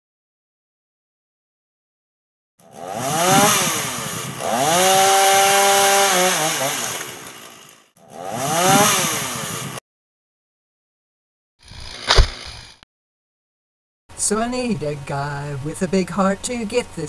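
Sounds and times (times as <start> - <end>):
chainsaw engine revving: 2.6 - 9.8, 11.6 - 12.8.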